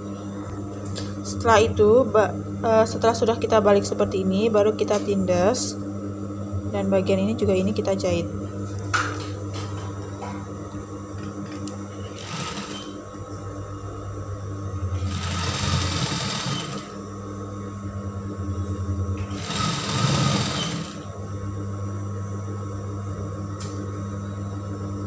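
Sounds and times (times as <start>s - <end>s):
sewing machine motor humming: 12.0s - 13.0s, 14.9s - 17.0s, 19.2s - 21.1s
sewing machine stitching: 12.1s - 13.0s, 15.0s - 17.0s, 19.3s - 21.1s.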